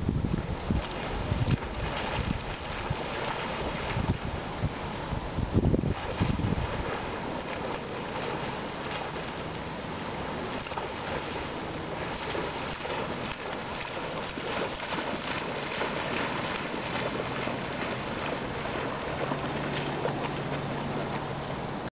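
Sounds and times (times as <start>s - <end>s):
wind on microphone: 0.0s - 9.4s
dog splashing through water: 0.7s - 4.4s, 5.8s - 21.4s.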